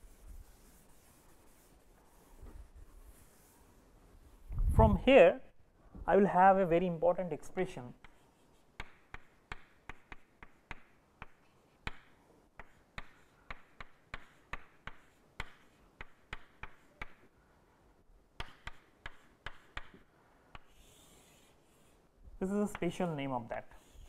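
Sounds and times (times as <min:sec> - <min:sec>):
chalk tapping on chalkboard: 0:00.0 - 0:03.6, 0:08.0 - 0:17.4, 0:18.4 - 0:22.0, 0:22.6 - 0:23.1, 0:23.7 - 0:24.0
chalk scraping: 0:00.0 - 0:03.9, 0:08.0 - 0:12.0, 0:20.5 - 0:22.1, 0:23.6 - 0:24.0.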